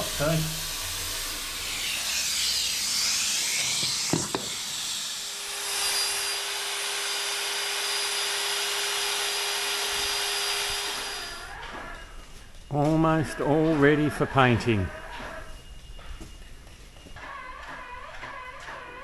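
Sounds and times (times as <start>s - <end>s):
power tool humming: 0.0s - 11.6s.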